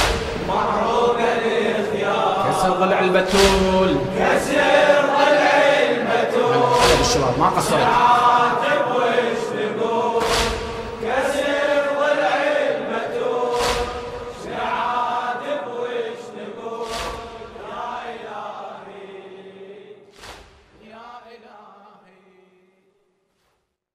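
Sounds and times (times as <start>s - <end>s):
crowd chanting: 0.0s - 22.6s
heavy beat: 3.2s - 4.4s, 6.5s - 8.1s.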